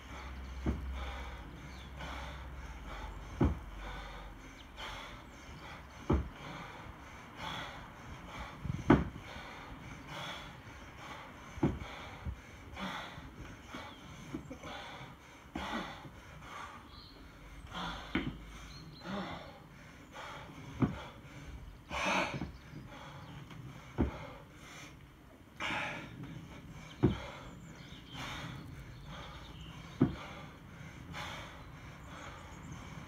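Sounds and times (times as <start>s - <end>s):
person breathing hard: 0.0s - 25.0s, 25.6s - 33.0s
kettlebell dull thud: 0.6s - 1.0s, 3.3s - 3.7s, 6.1s - 6.4s, 8.8s - 9.2s, 11.6s - 12.0s, 18.1s - 18.4s, 24.0s - 24.3s, 27.0s - 27.3s, 30.0s - 30.3s.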